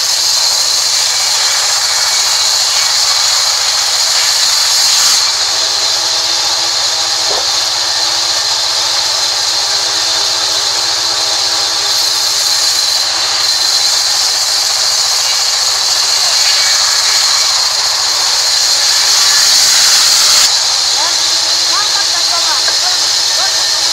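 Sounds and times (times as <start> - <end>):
band saw cutting log: 0.0 - 23.9.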